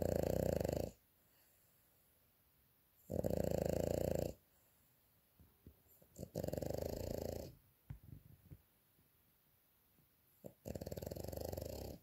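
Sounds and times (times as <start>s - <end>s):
dog snoring: 0.0s - 1.0s, 3.0s - 4.4s, 6.1s - 7.6s, 10.4s - 12.0s.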